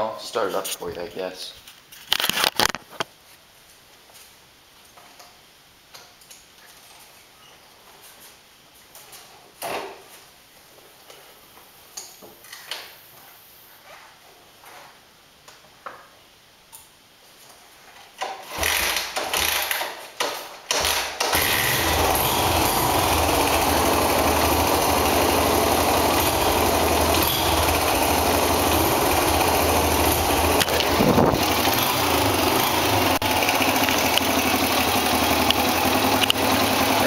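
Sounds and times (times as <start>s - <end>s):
motorcycle engine starting and idling: 20.7s - 37.0s
engine revving: 21.4s - 37.0s.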